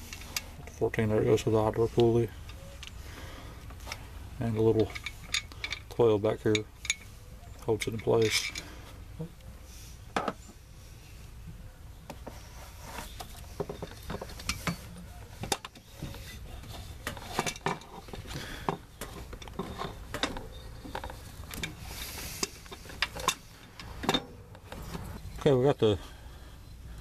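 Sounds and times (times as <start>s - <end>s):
metal tools clinking: 4.5s - 8.7s, 17.1s - 24.4s.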